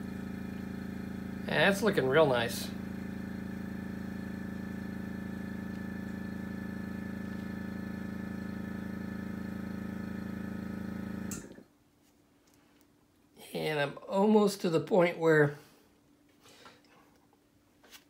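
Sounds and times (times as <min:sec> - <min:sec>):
compressor motor humming: 0:00.0 - 0:11.6.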